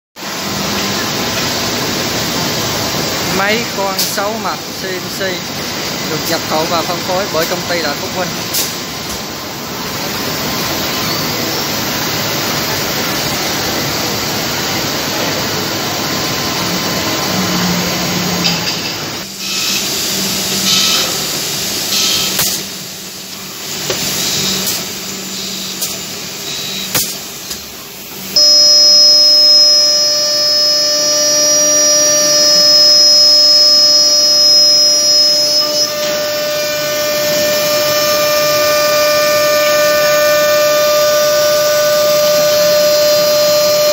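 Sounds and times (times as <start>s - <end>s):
high-pitched machine whine: 0.2s - 43.9s
drilling machine rushing noise: 28.2s - 43.9s.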